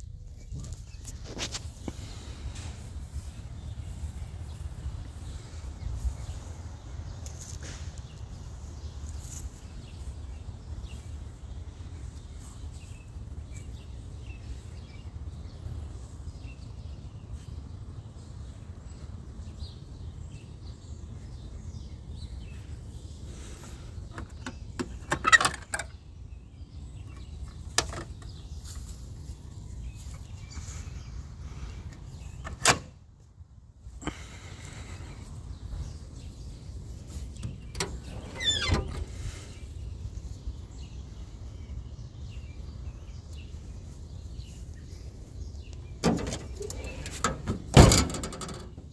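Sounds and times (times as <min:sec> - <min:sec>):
steady low rumble: 0:00.0 - 0:16.3.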